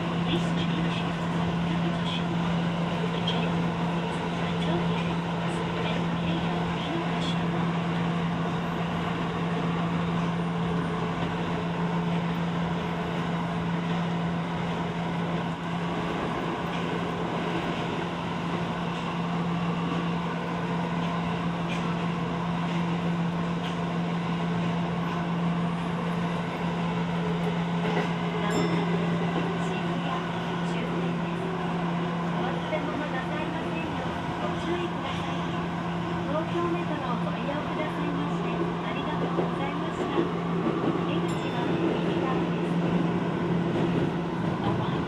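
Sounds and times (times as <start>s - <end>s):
subway train wheels rumbling: 0.0s - 45.0s.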